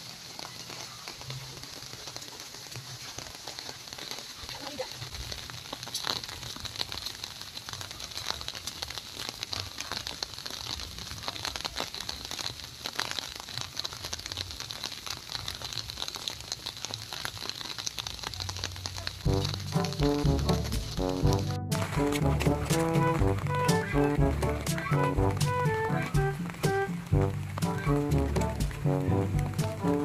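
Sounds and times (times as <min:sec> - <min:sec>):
light rain pattering on leaves: 0:00.0 - 0:30.0
music: 0:19.3 - 0:30.0.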